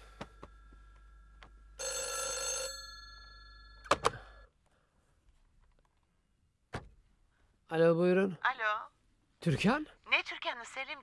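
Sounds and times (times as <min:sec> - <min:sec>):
faint steady hum: 0:00.0 - 0:01.8
telephone bell ringing: 0:01.7 - 0:04.5.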